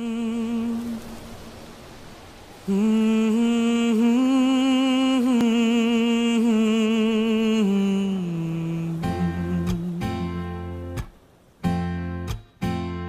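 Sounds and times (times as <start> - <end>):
person humming a slow melody: 0.0 - 1.5, 2.6 - 11.0.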